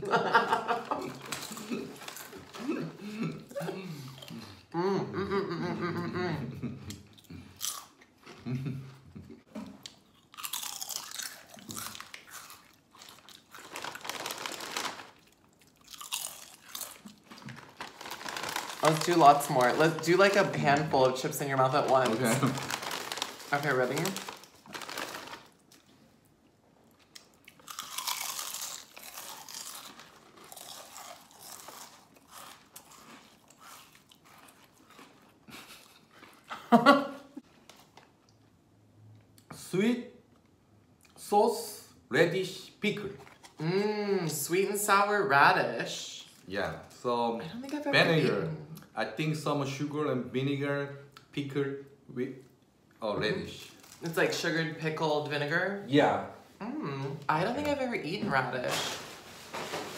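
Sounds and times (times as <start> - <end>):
people crunching potato chips: 0.7 - 4.6, 6.8 - 8.9, 9.7 - 26.0, 27.0 - 36.6, 53.4 - 54.4.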